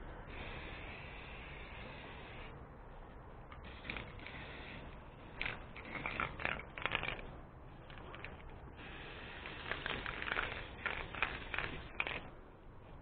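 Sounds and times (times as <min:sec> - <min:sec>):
spray-paint can hissing: 0:00.3 - 0:02.5, 0:03.6 - 0:07.3, 0:07.9 - 0:12.3.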